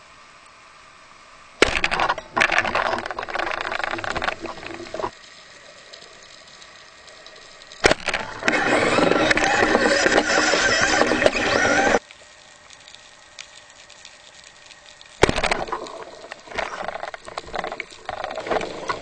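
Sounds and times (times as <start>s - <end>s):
speargun firing crack: 1.6s - 2.1s, 15.2s - 15.7s
crackling and rattling: 1.6s - 12.0s, 15.2s - 19.0s.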